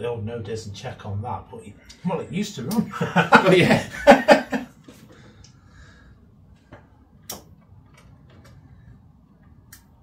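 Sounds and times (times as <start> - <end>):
clicks and taps handling wiring: 6.7 - 8.7.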